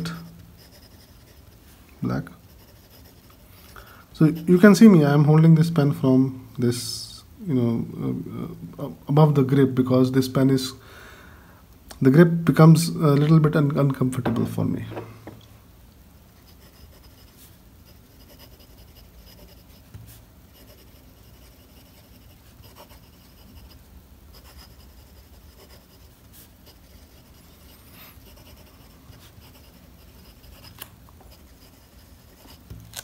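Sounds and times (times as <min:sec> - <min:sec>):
pen nib scratching paper: 0:00.0 - 0:01.7, 0:02.4 - 0:03.5, 0:16.4 - 0:33.0.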